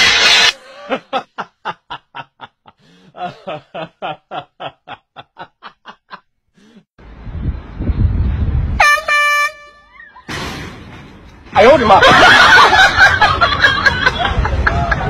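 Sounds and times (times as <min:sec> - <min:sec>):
street noise: 0:00.0 - 0:04.2, 0:06.6 - 0:15.0
wind: 0:00.0 - 0:15.0
rhythmic laughter: 0:00.7 - 0:06.3
air horn blast: 0:08.8 - 0:09.9.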